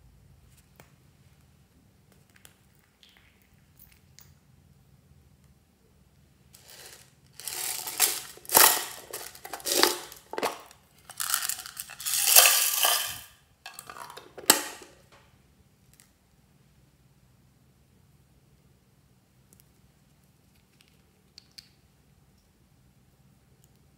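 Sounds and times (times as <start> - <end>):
beads rattling in container: 6.6 - 14.9
sharp clatter: 6.6 - 15.0.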